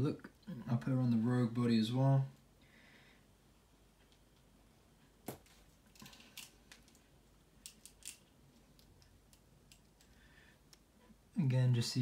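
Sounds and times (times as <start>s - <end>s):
small plastic clicks: 7.6s - 10.9s.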